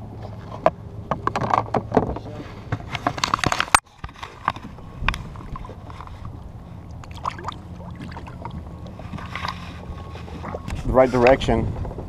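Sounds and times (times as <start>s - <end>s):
water lapping around kayak: 2.3s - 12.0s
fish splashing in water: 6.8s - 9.4s.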